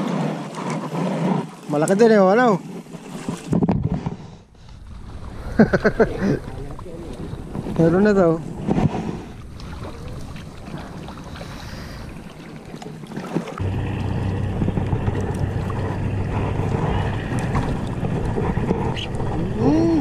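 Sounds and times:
wind on microphone: 0:02.4 - 0:20.0
microphone handling noise: 0:03.1 - 0:10.4
boat engine humming: 0:04.4 - 0:20.0.

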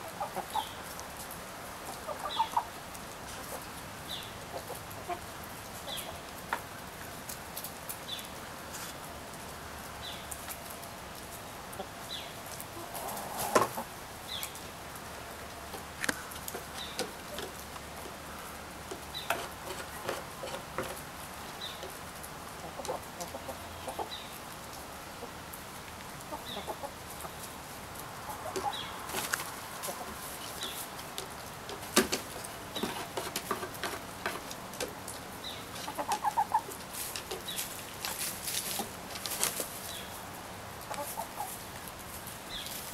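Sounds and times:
hens clucking softly: 0:00.0 - 0:01.0, 0:01.8 - 0:06.6, 0:11.8 - 0:14.0, 0:22.6 - 0:24.4, 0:26.2 - 0:39.9, 0:40.8 - 0:41.9.

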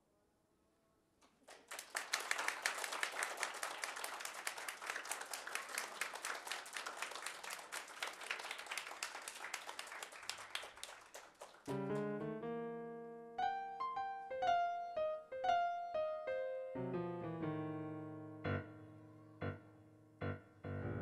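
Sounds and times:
audience applauding: 0:01.4 - 0:12.2.

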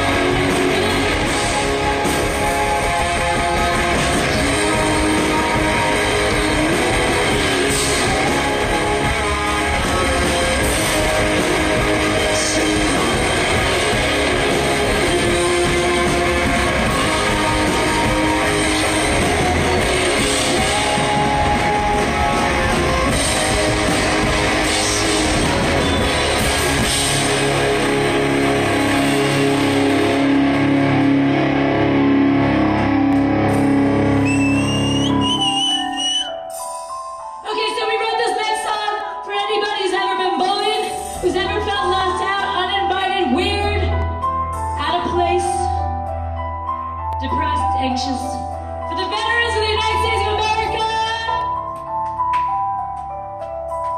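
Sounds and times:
electric guitars: 0:00.0 - 0:36.4
drum kit: 0:00.0 - 0:37.0.

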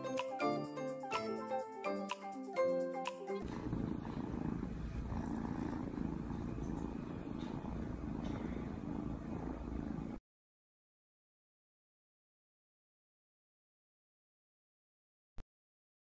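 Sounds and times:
kitten purring: 0:03.4 - 0:10.2.

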